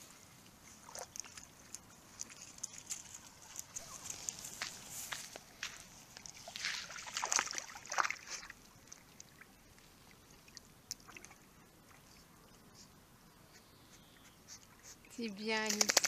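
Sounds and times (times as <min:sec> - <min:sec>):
faint water lapping and drips: 0:00.0 - 0:15.3
dog splashing into water: 0:06.4 - 0:08.6.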